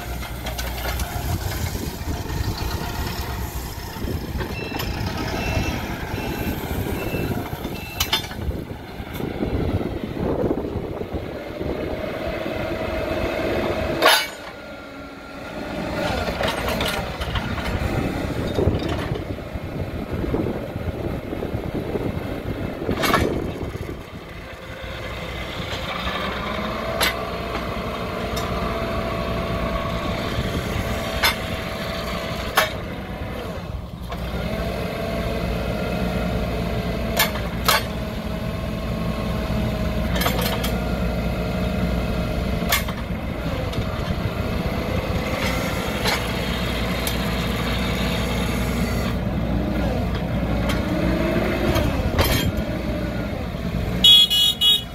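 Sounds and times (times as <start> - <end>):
forklift engine running: 0.0 - 54.9
hydraulic whine: 39.3 - 54.9.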